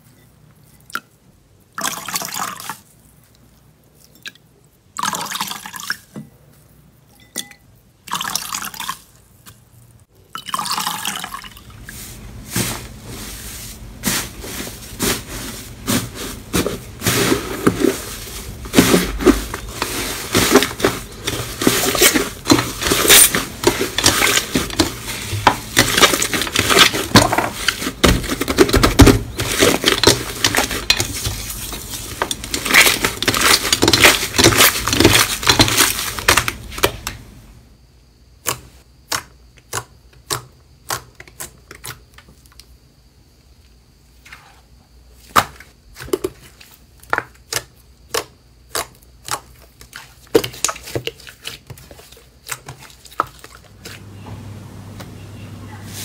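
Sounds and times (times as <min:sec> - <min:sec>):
slime crackling and squelching: 0:13.8 - 0:37.0.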